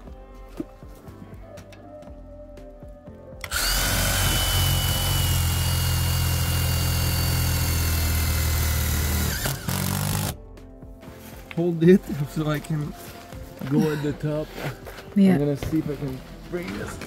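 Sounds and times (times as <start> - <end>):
power drill boring into metal: 3.4 - 10.4.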